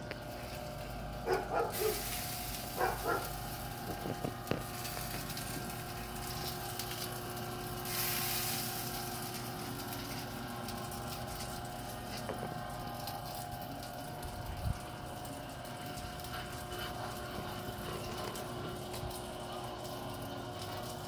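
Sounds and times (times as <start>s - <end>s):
smoker mechanical hum: 0.0s - 21.0s
hiss: 1.7s - 3.2s, 7.8s - 9.0s.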